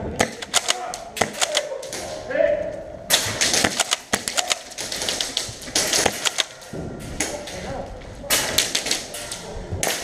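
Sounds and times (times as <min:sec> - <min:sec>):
airsoft gunfire bursts: 0:00.2 - 0:01.6, 0:03.4 - 0:06.6.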